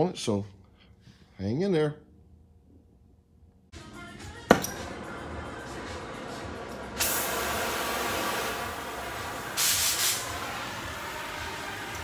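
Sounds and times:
torch flame hissing: 0:06.8 - 0:12.0.

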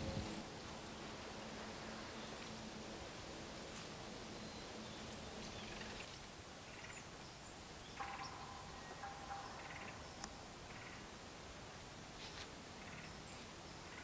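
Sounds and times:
long steady bird call: 0:00.0 - 0:14.0
faint rattling bird calls: 0:03.6 - 0:14.0.

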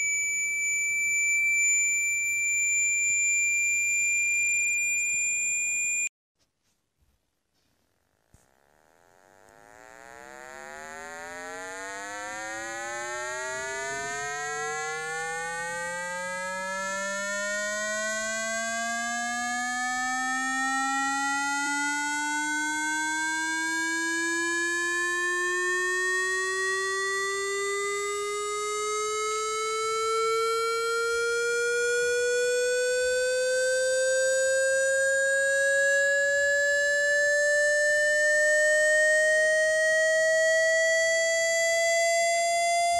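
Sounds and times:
electronic tone rising in pitch: 0:00.0 - 0:06.1, 0:08.6 - 0:42.9.

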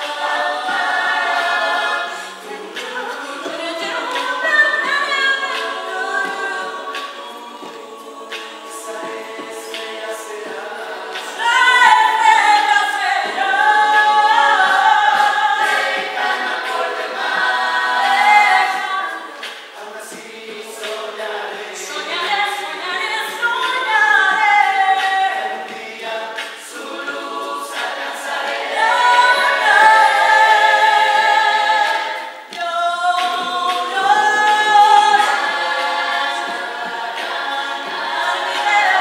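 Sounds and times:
mixed voices singing in harmony: 0:00.0 - 0:39.0
woman singing lead: 0:01.9 - 0:07.2, 0:11.3 - 0:16.0, 0:21.8 - 0:25.7, 0:28.8 - 0:35.4.

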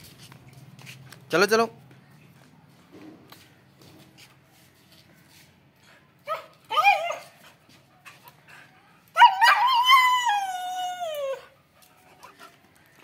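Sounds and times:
dog howling: 0:09.2 - 0:11.6.

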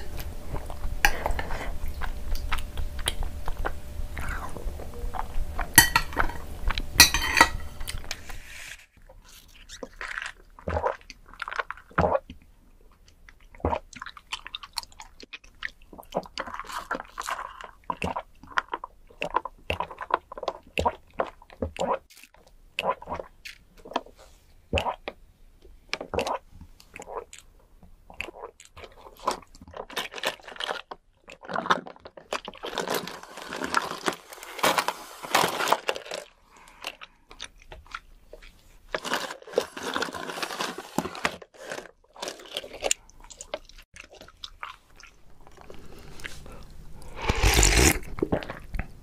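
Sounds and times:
tapioca pearls being chewed: 0:00.0 - 0:07.0, 0:09.0 - 0:34.6, 0:35.5 - 0:49.0
slurping through a straw: 0:31.3 - 0:37.1, 0:45.5 - 0:48.7
loud slurp from a spoon: 0:45.6 - 0:48.6.

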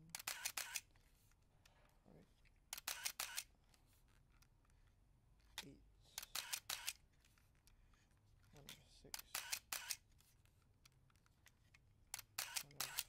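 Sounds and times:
camera shutter clicks: 0:00.1 - 0:00.9, 0:02.7 - 0:03.5, 0:06.2 - 0:07.0, 0:09.2 - 0:10.0, 0:12.1 - 0:13.0.

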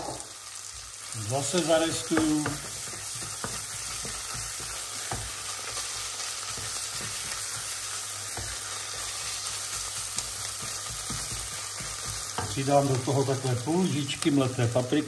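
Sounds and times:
food sizzling in a pot: 0:00.0 - 0:15.0.

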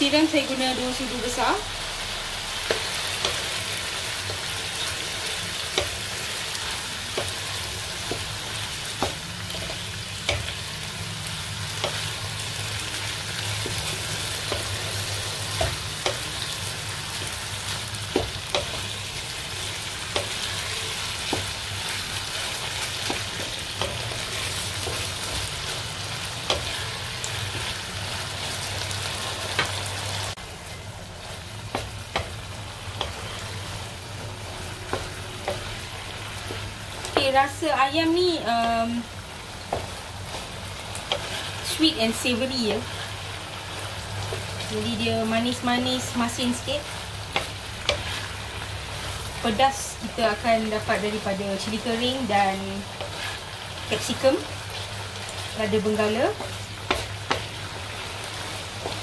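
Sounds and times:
chicken sizzling in a pan: 0:00.0 - 0:59.0
wooden spatula knocking on pan: 0:08.0 - 0:10.6, 0:18.0 - 0:19.0, 0:31.7 - 0:32.4, 0:39.6 - 0:40.4.

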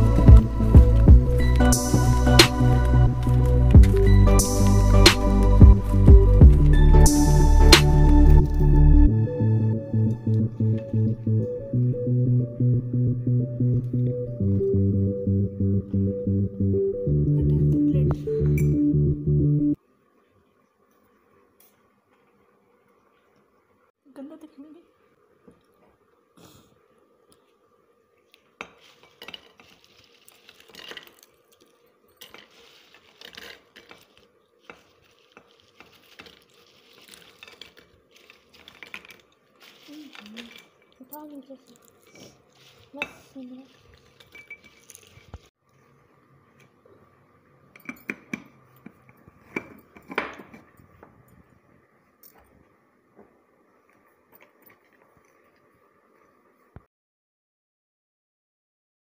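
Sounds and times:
glass jar handling: 0:28.6 - 0:31.5, 0:32.1 - 0:45.5, 0:47.8 - 0:51.3
crunchy rustling clatter: 0:28.6 - 0:45.5
lid clinking on glass jar: 0:47.8 - 0:50.8.

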